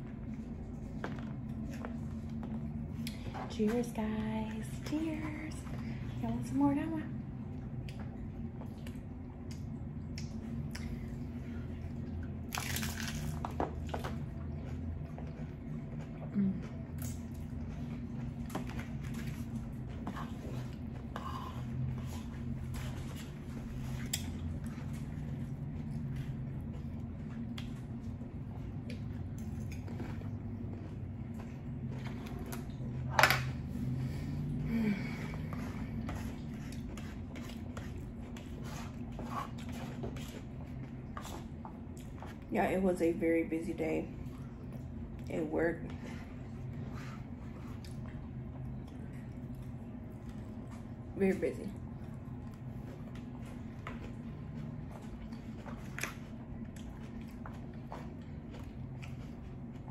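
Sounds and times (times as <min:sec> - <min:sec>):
steady low hum: 0:00.0 - 0:59.9
crunchy taco crunching: 0:12.2 - 0:21.2.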